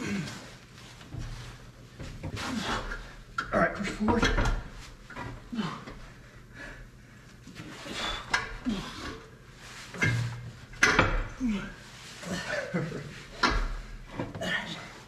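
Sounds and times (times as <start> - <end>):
person grunting: 0.0 - 0.4, 5.5 - 5.9, 8.6 - 9.2, 11.3 - 13.1
metal clanks and knocks: 3.4 - 5.4, 9.9 - 11.4, 13.4 - 14.4.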